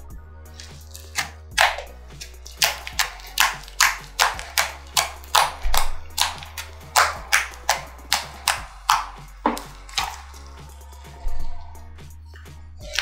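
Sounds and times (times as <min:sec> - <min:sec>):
low background music: 0:00.0 - 0:13.0
slime popping and crackling: 0:00.6 - 0:10.4.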